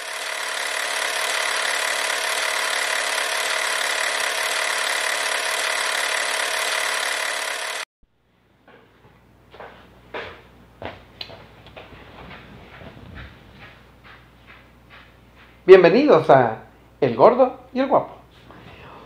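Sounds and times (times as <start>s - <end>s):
grinding machine noise: 0.0s - 7.9s.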